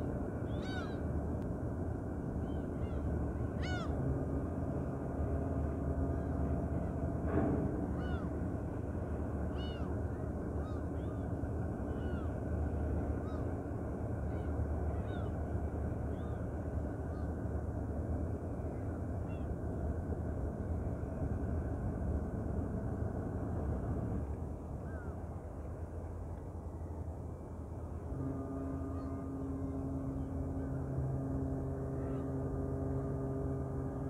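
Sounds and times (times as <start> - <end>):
gulls calling: 0.0 - 1.3, 1.9 - 17.8
ferry engines droning: 0.0 - 34.0.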